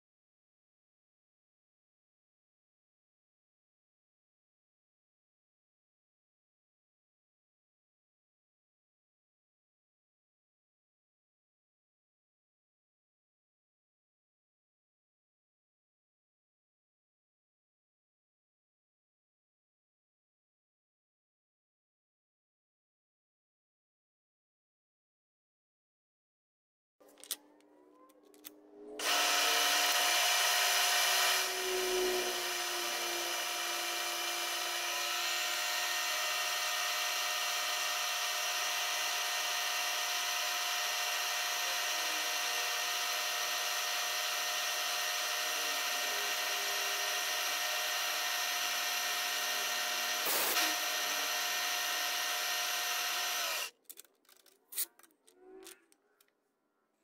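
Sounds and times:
milling machine spindle whine: 0:29.0 - 0:53.7.

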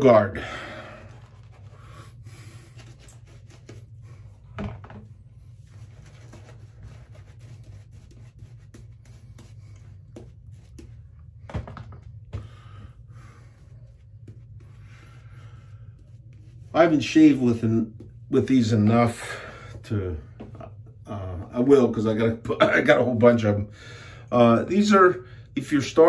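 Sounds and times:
shaving brush scratchy brushing: 0:05.4 - 0:11.0.

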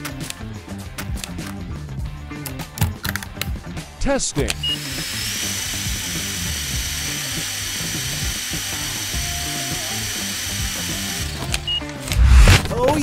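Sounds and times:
electric motor whirring: 0:04.6 - 0:12.7.

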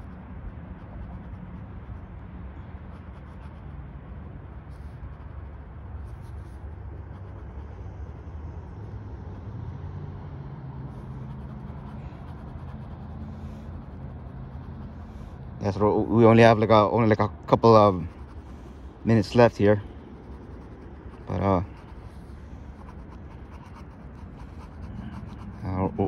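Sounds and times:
pen scratching on paper: 0:00.0 - 0:02.0, 0:02.8 - 0:03.8, 0:10.9 - 0:16.8, 0:17.4 - 0:26.0
steady low rumble: 0:00.0 - 0:26.0.

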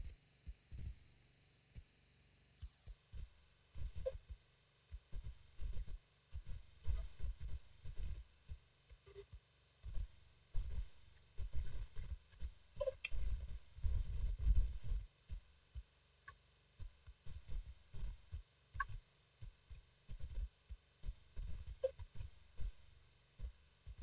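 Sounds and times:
faint short chirps: 0:12.8 - 0:13.2, 0:21.8 - 0:22.0.

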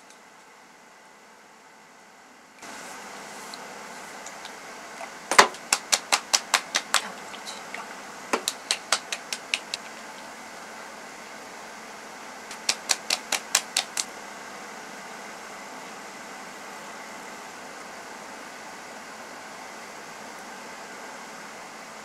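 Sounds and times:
steady low hiss: 0:00.0 - 0:22.0
palms slapping face: 0:05.3 - 0:10.3, 0:12.5 - 0:14.1.

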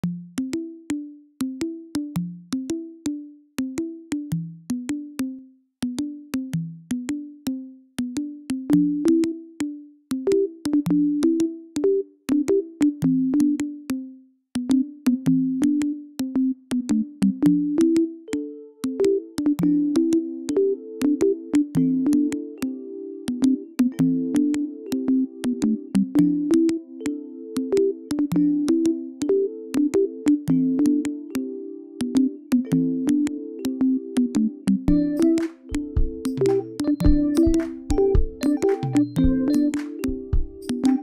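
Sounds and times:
higher keyboard notes: 0:14.7 - 0:41.0
plucked synth notes: 0:32.0 - 0:41.0.

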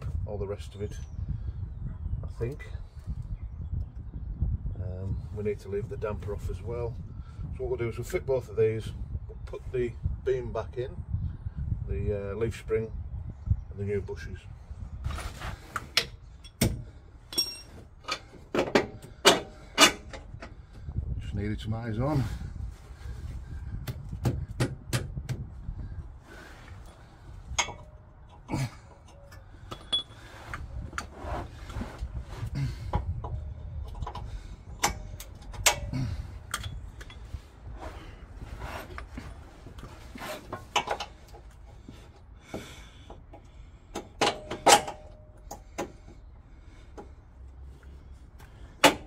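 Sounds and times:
metallic clinks and knocks: 0:17.3 - 0:20.3, 0:27.5 - 0:30.3.

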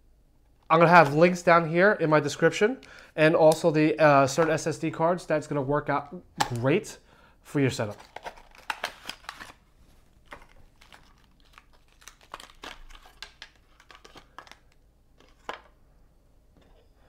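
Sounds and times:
plastic bag crinkling: 0:07.8 - 0:15.5.

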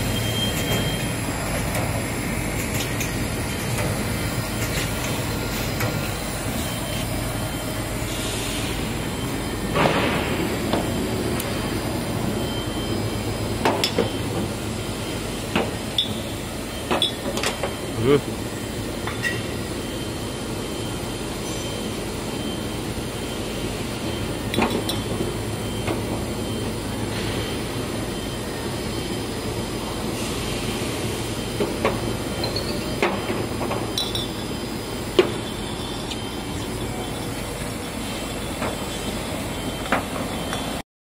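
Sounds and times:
steady mechanical running noise: 0:00.0 - 0:40.8
glass bottles clinking: 0:33.9 - 0:34.5.

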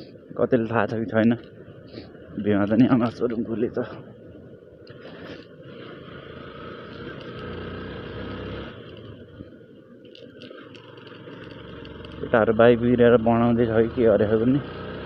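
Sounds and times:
wind and road noise: 0:00.0 - 0:15.0
motorcycle engine: 0:05.5 - 0:09.5, 0:10.4 - 0:15.0.

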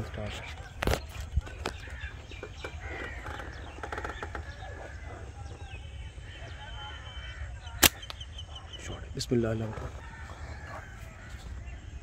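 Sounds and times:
birds calling: 0:00.0 - 0:12.0
sharp snap: 0:07.8 - 0:08.2.

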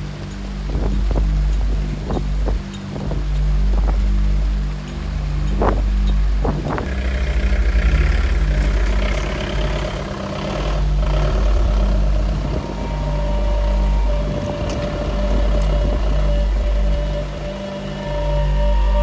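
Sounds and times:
background music with deep bass: 0:00.0 - 0:19.0
held higher tone: 0:06.8 - 0:19.0.

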